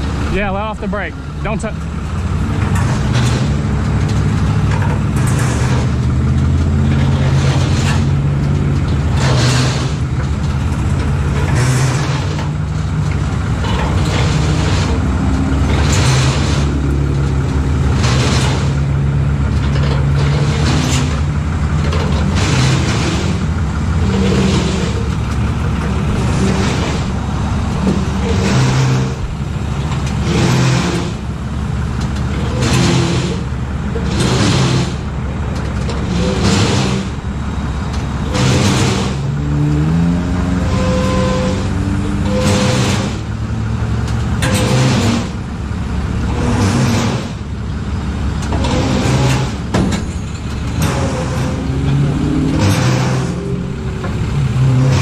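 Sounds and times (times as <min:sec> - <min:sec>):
truck engines running: 0:00.0 - 0:55.0.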